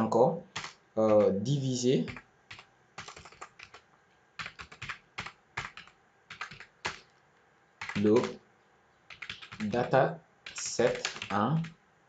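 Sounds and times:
keyboard key clicks: 0:10.5 - 0:11.4.

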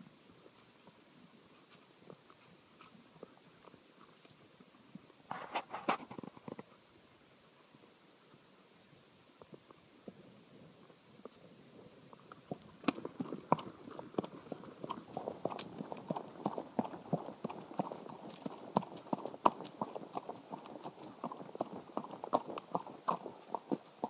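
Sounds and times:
horse hoofbeats on dirt: 0:00.3 - 0:05.2, 0:12.1 - 0:24.0.

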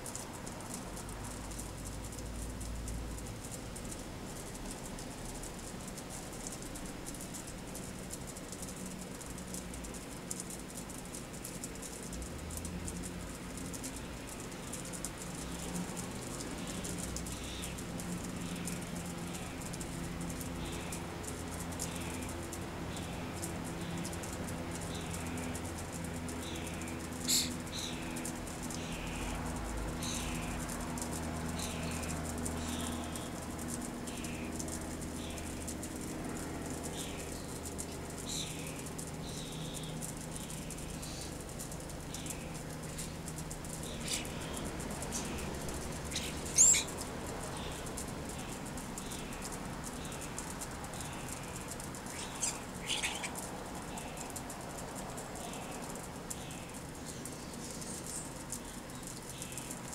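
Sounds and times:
birds flapping wings: 0:00.0 - 0:59.9
bird chirping: 0:26.3 - 0:29.4, 0:36.8 - 0:54.4, 0:55.4 - 0:59.8.

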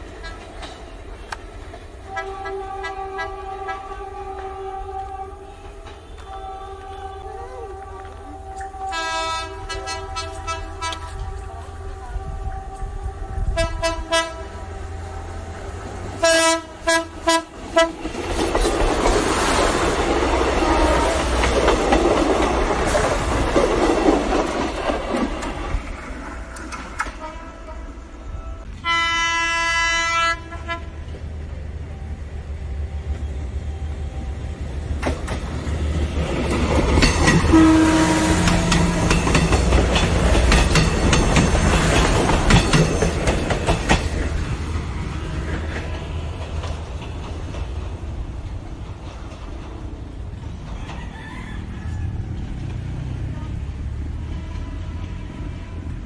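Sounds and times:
train rumbling on rails: 0:00.0 - 0:56.0
train horn: 0:02.0 - 0:18.0, 0:20.6 - 0:21.5, 0:26.9 - 0:31.2, 0:37.2 - 0:42.3, 0:53.0 - 0:56.0
wheels clicking over rail joints: 0:16.0 - 0:27.5, 0:34.8 - 0:51.2.

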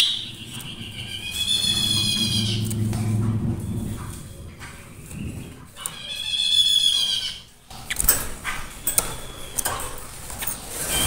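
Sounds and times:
bird harsh buzzing call: 0:00.0 - 0:03.2
sharp clicks: 0:07.7 - 0:10.6.

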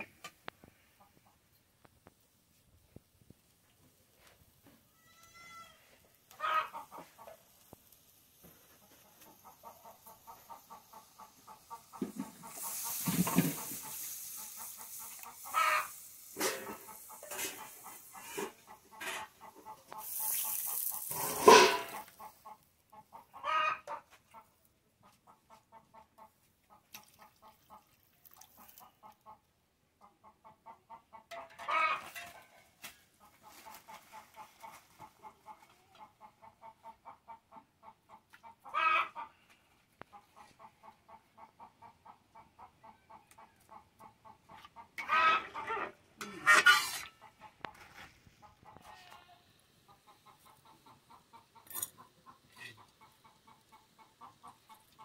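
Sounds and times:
chickens clucking: 0:06.3 - 0:27.9, 0:28.5 - 0:55.0
hissing noise bursts: 0:10.7 - 0:18.6.

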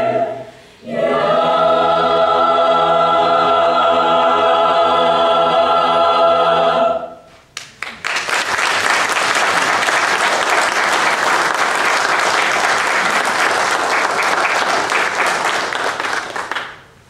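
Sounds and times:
audience applauding: 0:07.6 - 0:16.9.

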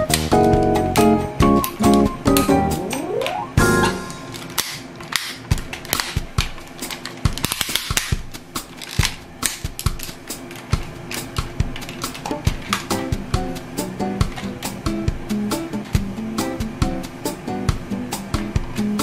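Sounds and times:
plastic toy clicking and snapping: 0:04.3 - 0:13.0.

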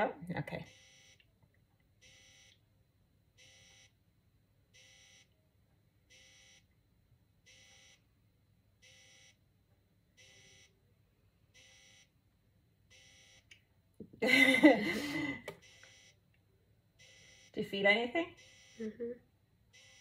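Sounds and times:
faint electronic beeps: 0:00.7 - 0:01.2, 0:10.2 - 0:10.9, 0:12.9 - 0:13.5, 0:15.6 - 0:16.2, 0:17.0 - 0:17.7, 0:18.3 - 0:19.1, 0:19.7 - 0:20.0.

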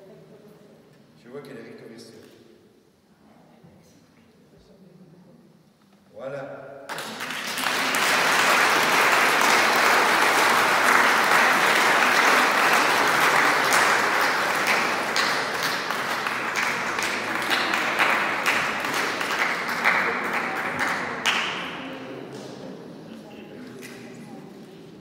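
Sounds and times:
congregation applauding: 0:06.9 - 0:22.6.

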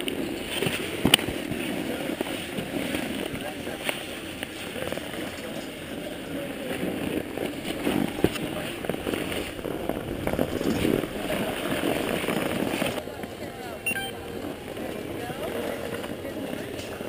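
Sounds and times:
snowboard scraping over snow: 0:00.0 - 0:13.0
jacket fabric rustling: 0:06.6 - 0:13.0.

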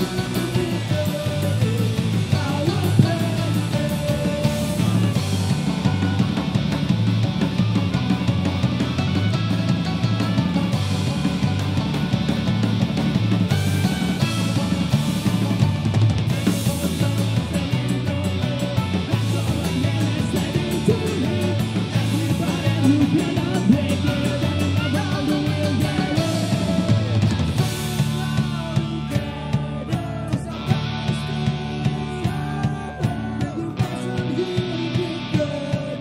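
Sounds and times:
person singing: 0:00.0 - 0:06.1, 0:13.9 - 0:36.0
punk band playing live: 0:00.0 - 0:36.0.

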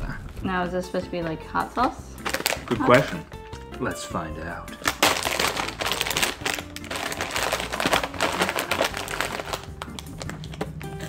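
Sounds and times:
faint background music: 0:00.0 - 0:11.0
plastic snack bag crinkling: 0:02.2 - 0:03.2, 0:04.8 - 0:11.0.

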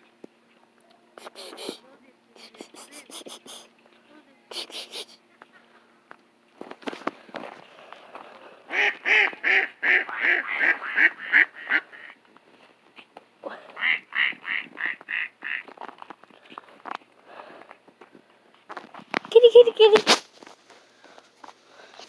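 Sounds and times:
ducks quacking: 0:08.7 - 0:12.2, 0:13.7 - 0:15.8.

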